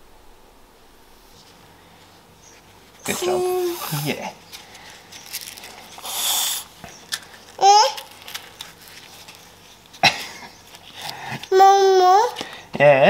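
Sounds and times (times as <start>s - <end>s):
toddler babbling: 3.1s - 3.9s, 7.6s - 8.1s, 11.5s - 12.4s
brief hiss: 6.0s - 6.7s.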